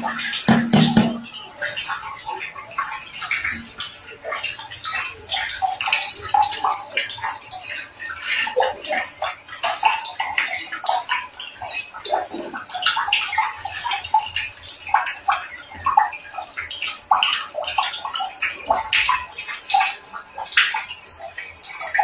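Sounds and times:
water running and splashing: 0.0 - 22.0.

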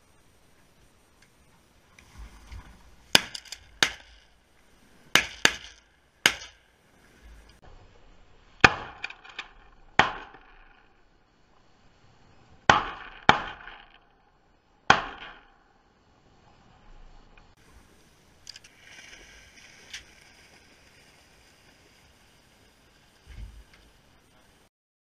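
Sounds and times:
shotgun shots echoing: 3.1 - 4.3, 5.1 - 6.6.

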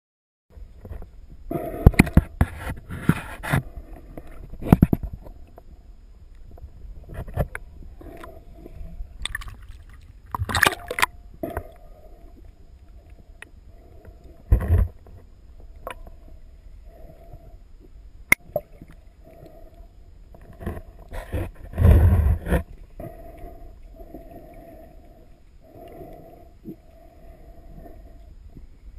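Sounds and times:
low gurgling water: 0.5 - 28.9
sea water splashing: 9.2 - 11.3.

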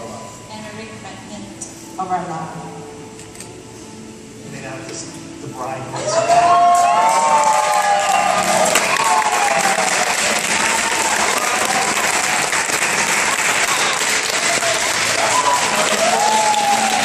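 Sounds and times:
voices cheering: 5.9 - 17.0
audience applauding: 6.1 - 17.0.

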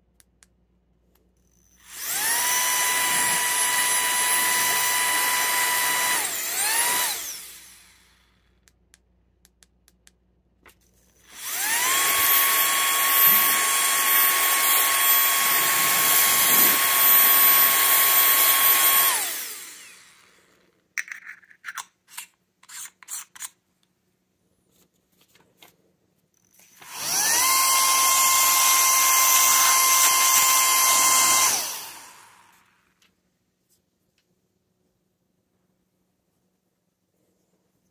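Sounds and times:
electric air blower whining: 1.8 - 8.4, 11.2 - 20.5, 26.6 - 32.8.

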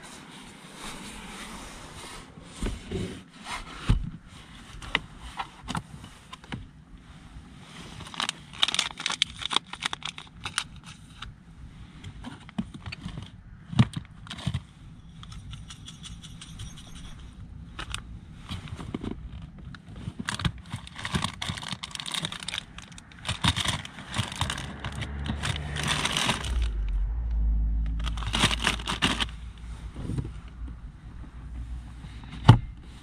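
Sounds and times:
packets rustling: 8.0 - 11.0, 20.1 - 26.9, 27.9 - 29.4
items knocking together: 20.3 - 26.7.

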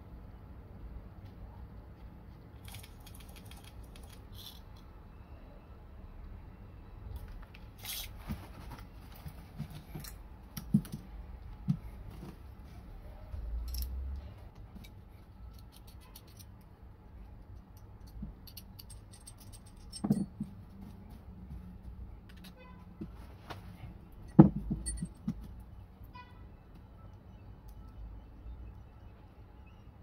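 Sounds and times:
small metal parts clicking: 2.6 - 4.9, 13.6 - 16.7, 17.3 - 20.4.

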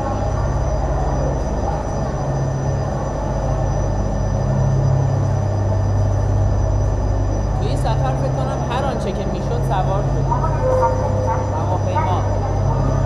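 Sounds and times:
gondola machinery rumbling: 0.0 - 13.0.

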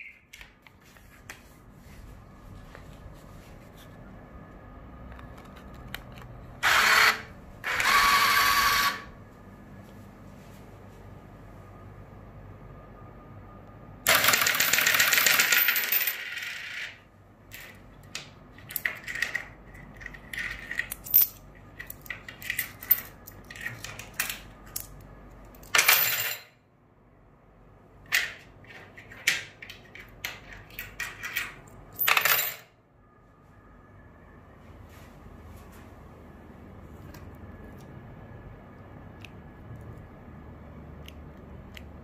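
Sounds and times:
coins pouring: 14.1 - 16.8
coins clinking: 14.1 - 17.0, 18.7 - 25.0, 25.6 - 26.6, 30.2 - 32.7.

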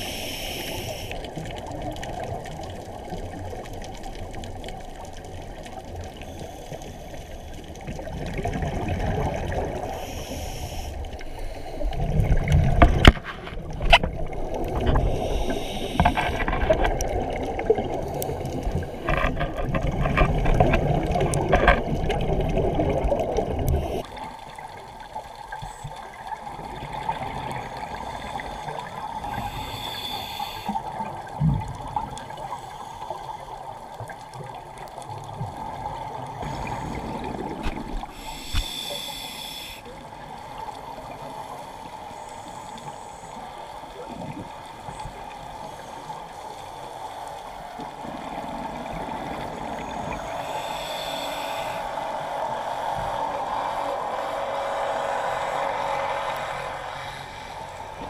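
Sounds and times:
water sloshing and bubbling: 0.0 - 58.0
short hisses: 38.2 - 39.8.

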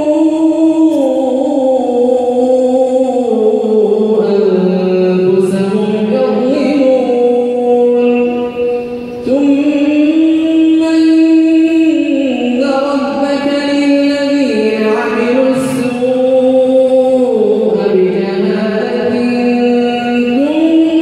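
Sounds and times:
man chanting melodically: 0.0 - 21.0.

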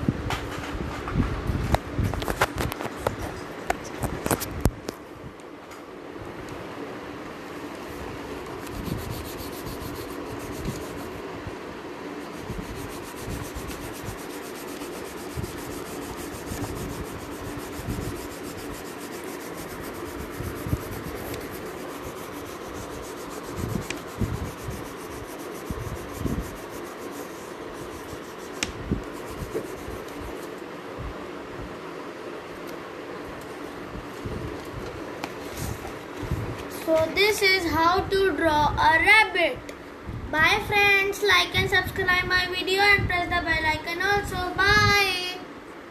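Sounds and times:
colouring stick rubbing on paper: 8.6 - 11.2, 12.1 - 30.5.

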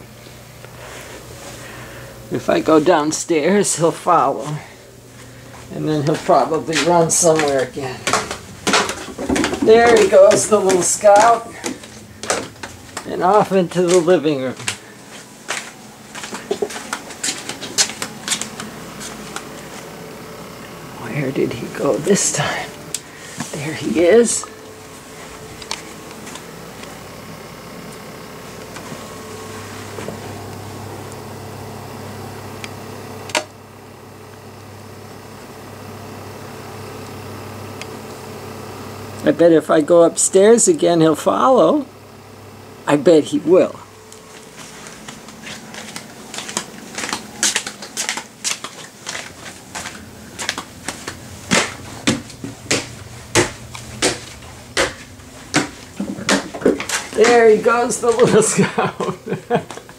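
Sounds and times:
low steady mechanical hum: 0.0 - 59.9
footsteps on wooden stairs: 5.6 - 19.9, 44.2 - 58.4.

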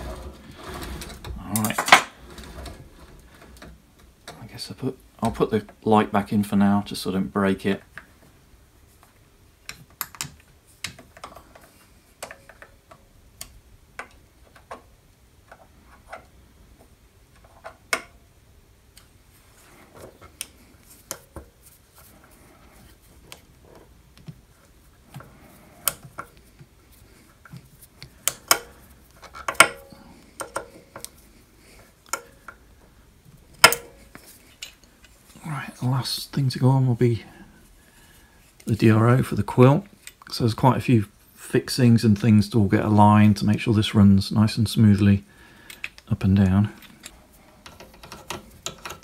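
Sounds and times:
small metal clicks and taps: 46.9 - 49.0.

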